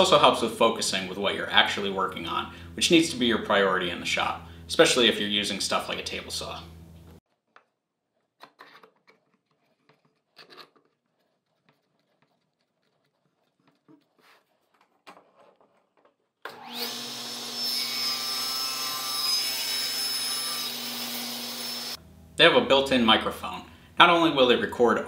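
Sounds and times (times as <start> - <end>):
table saw motor whining: 16.5 - 22.0.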